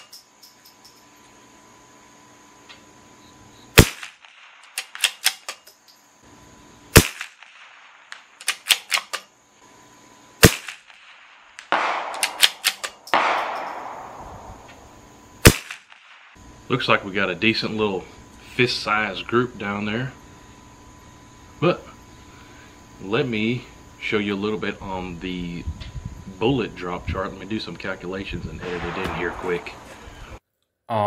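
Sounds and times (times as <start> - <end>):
rifle shots: 3.8 - 5.5, 6.9 - 9.1, 10.4 - 14.8, 15.4 - 16.4, 28.6 - 30.1
rifle bolt clicks and knocks: 12.1 - 13.8.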